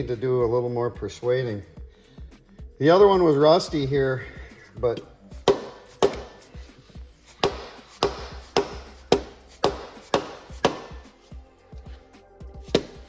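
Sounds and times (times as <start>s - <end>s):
plastic hammer striking metal: 5.4s - 6.3s, 7.4s - 11.0s.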